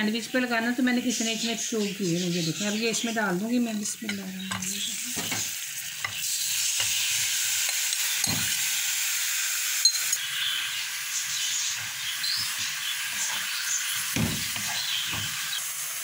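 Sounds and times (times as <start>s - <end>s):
chicken sizzling in hot oil: 0.0s - 16.0s
spoon scraping and knocking pan: 3.8s - 8.8s, 11.2s - 15.6s.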